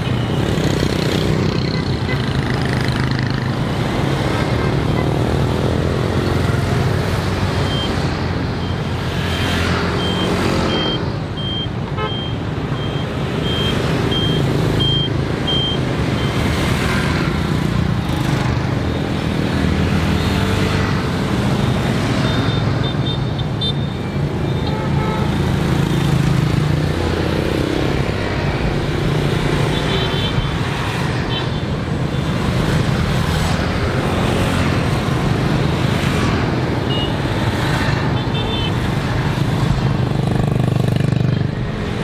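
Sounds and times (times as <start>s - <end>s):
cars passing: 0.0s - 42.0s
motorbike and scooter engines: 0.0s - 42.0s
high electronic beep: 10.0s - 16.3s.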